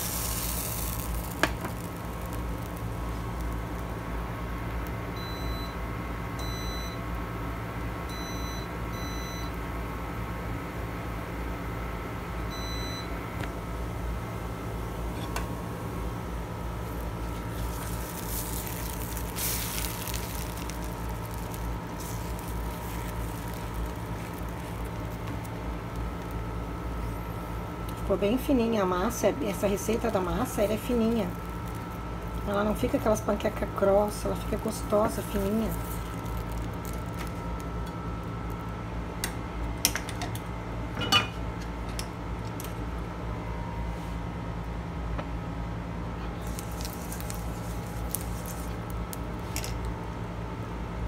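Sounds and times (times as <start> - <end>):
spatula turning pancake: 0.0 - 2.7, 17.0 - 26.4
batter sizzling in frying pan: 0.0 - 5.2, 16.2 - 28.5, 29.1 - 38.9, 46.4 - 50.0
steady low hum: 0.0 - 51.0.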